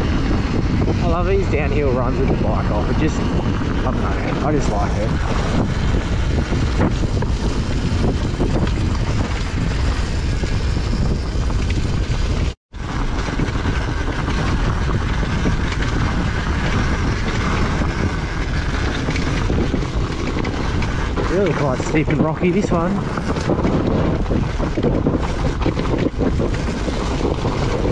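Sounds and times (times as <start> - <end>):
dirt bike engine running: 0.0 - 27.9
wind buffeting microphone: 0.0 - 27.9.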